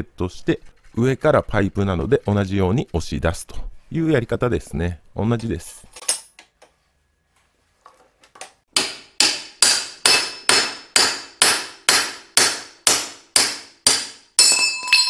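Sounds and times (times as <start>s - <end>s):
hammer ringing on steel pipe: 8.8s - 15.0s.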